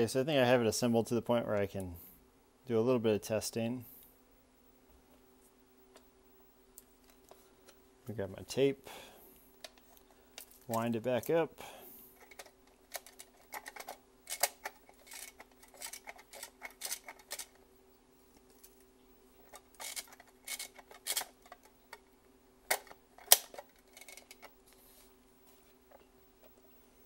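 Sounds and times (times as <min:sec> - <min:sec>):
faint steady hum: 0:00.0 - 0:27.0
plastic cassette clicks and rattles: 0:12.2 - 0:17.6, 0:19.4 - 0:22.1, 0:22.7 - 0:24.6.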